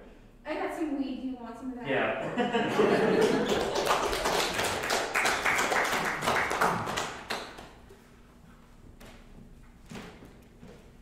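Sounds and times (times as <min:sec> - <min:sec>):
small audience clapping: 0:02.8 - 0:08.0.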